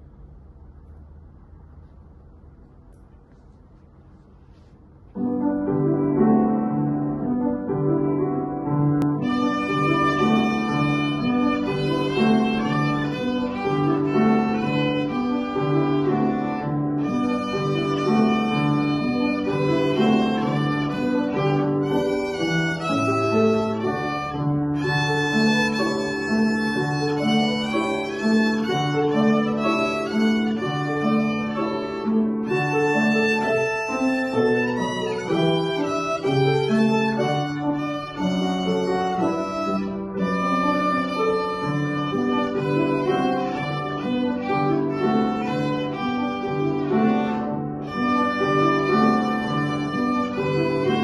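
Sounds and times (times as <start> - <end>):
piano accompaniment: 0.0 - 51.0
violin lullaby melody: 9.0 - 51.0.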